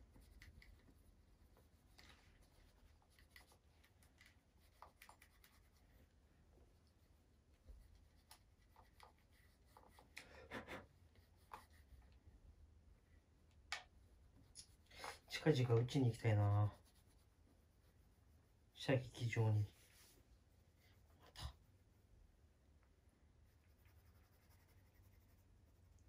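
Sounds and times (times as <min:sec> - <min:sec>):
cloth rubbing on metal: 0:14.6 - 0:22.0.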